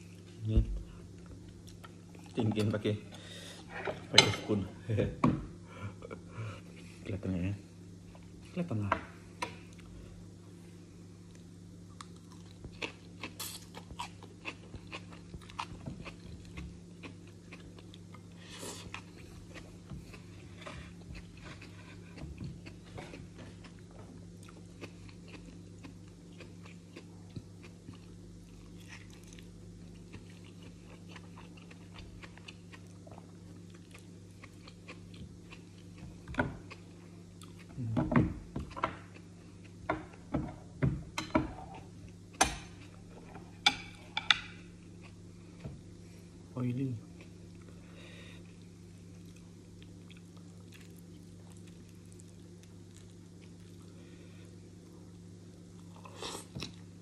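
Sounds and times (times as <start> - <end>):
steady low hum: 0.0 - 57.0
person chewing food: 0.9 - 2.6, 11.2 - 38.0, 38.6 - 40.4, 41.6 - 46.1, 47.1 - 56.9.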